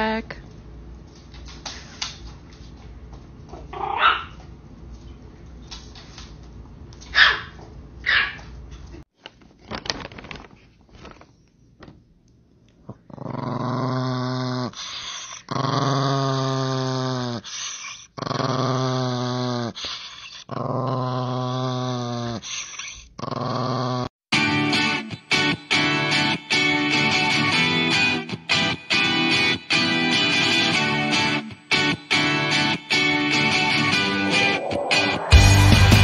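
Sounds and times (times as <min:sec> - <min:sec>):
small dog growling: 0:12.9 - 0:24.1.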